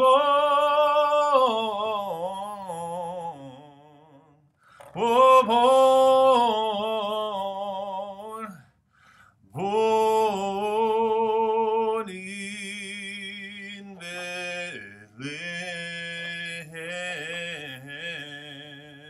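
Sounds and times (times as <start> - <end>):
man singing long notes: 9.6 - 19.0.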